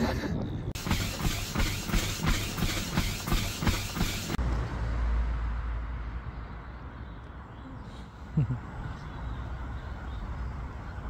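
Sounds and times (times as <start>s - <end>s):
treadmill belt and motor hiss: 0.8s - 4.4s.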